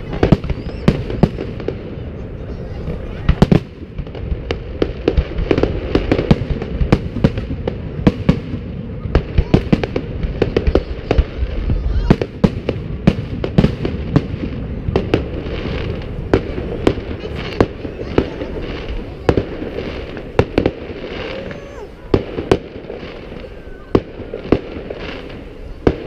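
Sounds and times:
fireworks bursting with sharp bangs: 0:00.0 - 0:26.0
steady rumbling haze: 0:00.0 - 0:26.0.

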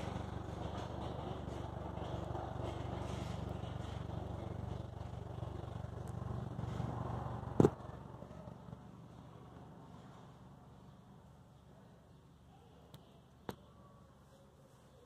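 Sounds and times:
motor low rumble: 0:00.0 - 0:11.4.

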